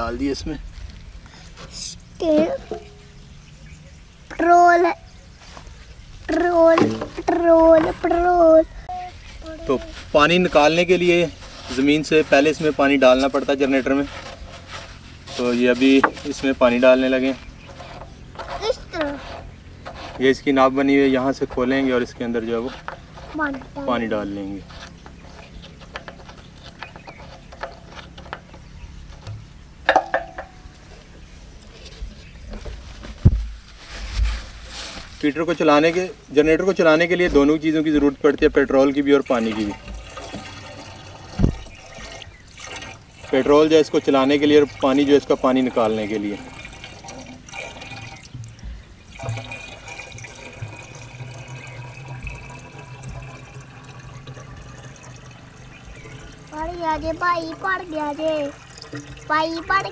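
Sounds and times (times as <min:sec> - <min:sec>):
water pouring into pump: 0:10.1 - 0:28.4, 0:38.6 - 0:59.9
dull thump: 0:32.6 - 0:34.4, 0:41.4 - 0:41.7.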